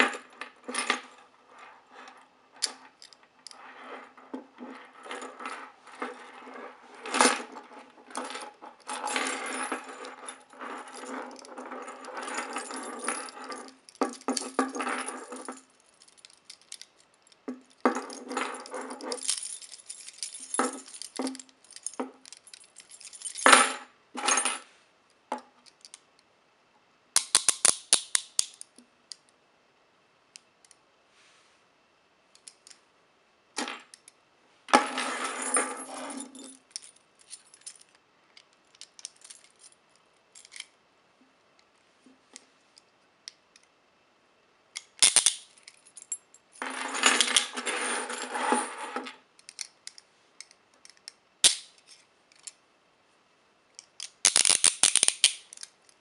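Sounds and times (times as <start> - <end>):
metal handcuffs clicking and rattling: 2.6 - 3.6, 12.5 - 23.5, 25.6 - 26.0, 27.2 - 29.3, 36.2 - 40.8, 44.8 - 46.2, 49.4 - 52.6, 53.8 - 56.0
keys jangling: 17.7 - 23.5.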